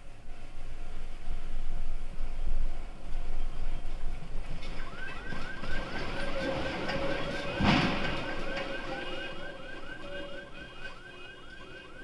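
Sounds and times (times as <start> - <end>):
electronic alarm rising chirps: 4.8 - 12.0.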